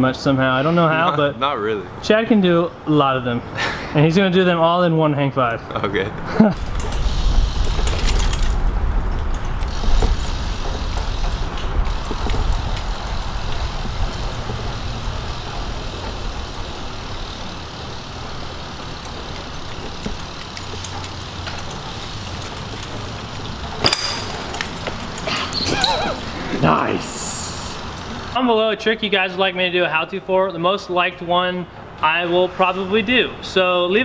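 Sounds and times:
bike tyres rolling on concrete: 0:06.6 - 0:28.9.

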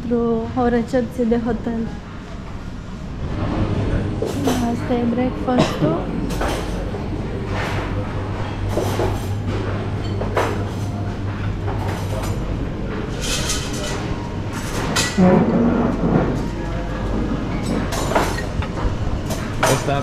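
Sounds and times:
steady low hum: 0:00.0 - 0:20.0
dish and cutlery clatter: 0:06.3 - 0:06.9, 0:07.5 - 0:16.5, 0:17.5 - 0:20.0.

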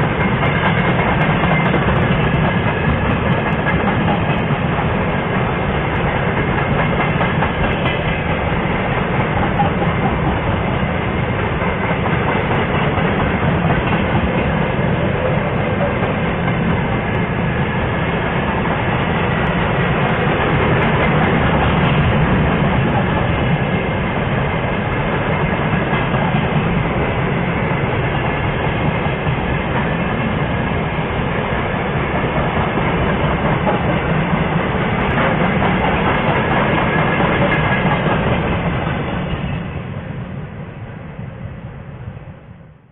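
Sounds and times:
freight train wheels rumbling: 0:00.0 - 0:42.9.

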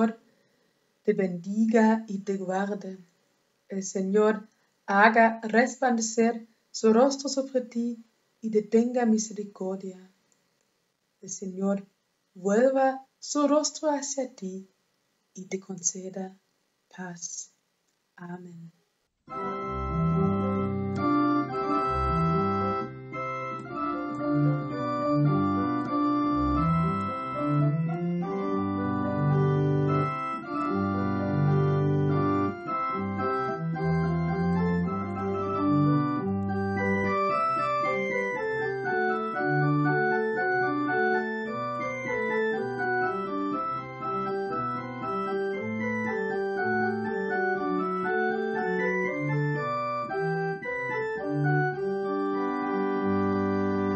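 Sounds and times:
church organ playing: 0:19.3 - 0:53.9.

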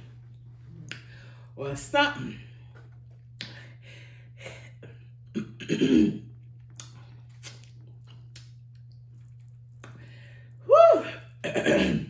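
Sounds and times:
woman clearing her throat: 0:05.4 - 0:06.2, 0:11.4 - 0:12.0
woman coughing: 0:05.4 - 0:06.2, 0:11.4 - 0:12.0
mouth and eating clicks: 0:06.5 - 0:10.0.

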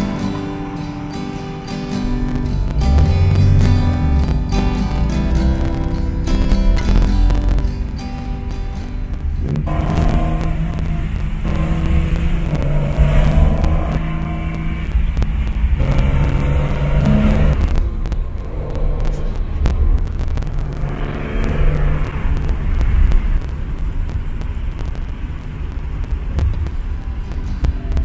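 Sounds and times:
car engine running: 0:00.0 - 0:27.2
low road rumble: 0:00.0 - 0:28.0.

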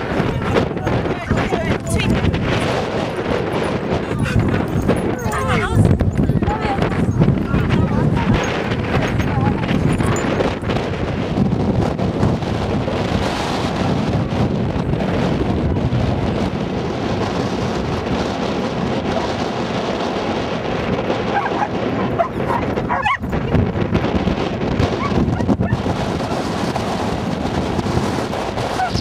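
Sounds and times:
wind buffeting microphone: 0:00.0 - 0:29.0
dogs yipping and whining: 0:03.0 - 0:06.2, 0:21.3 - 0:23.4, 0:24.9 - 0:26.4, 0:28.7 - 0:29.0.

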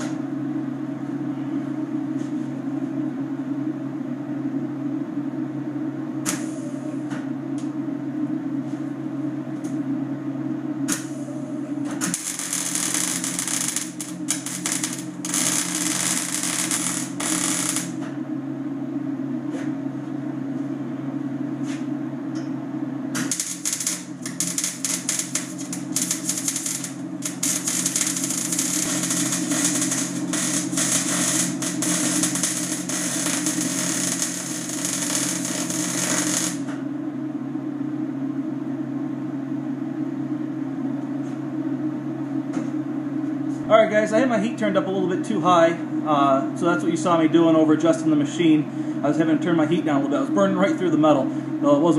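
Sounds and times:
welder humming: 0:10.8 - 0:18.2, 0:23.1 - 0:36.9
welding arc crackling: 0:12.0 - 0:18.0, 0:23.2 - 0:36.8.

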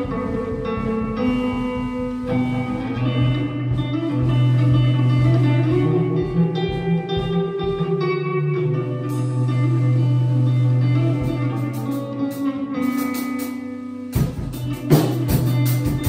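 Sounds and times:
electric guitar picked notes: 0:00.0 - 0:16.0.

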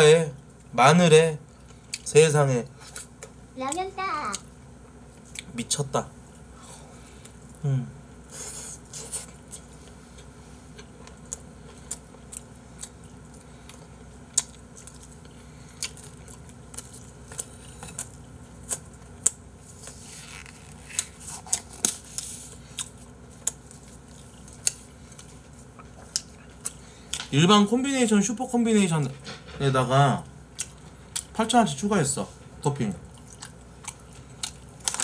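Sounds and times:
person chewing: 0:01.5 - 0:02.1, 0:08.3 - 0:27.3, 0:30.5 - 0:31.4, 0:33.0 - 0:35.0.

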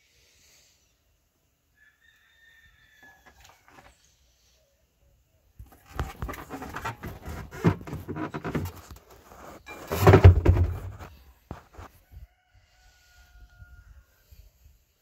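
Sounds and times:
tire rubbing and knocking: 0:05.6 - 0:11.9.

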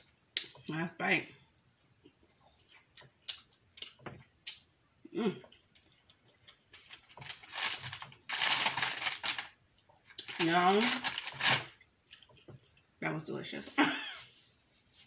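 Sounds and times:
wet chewing clicks and smacks: 0:01.4 - 0:04.7, 0:12.0 - 0:12.9
rustling: 0:06.8 - 0:11.8.

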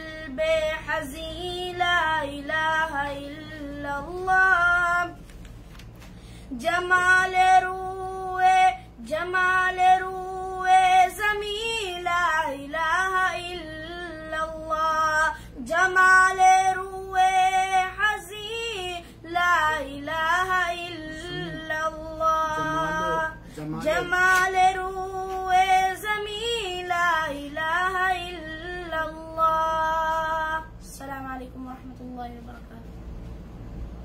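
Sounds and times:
boy singing solo: 0:21.2 - 0:21.8.

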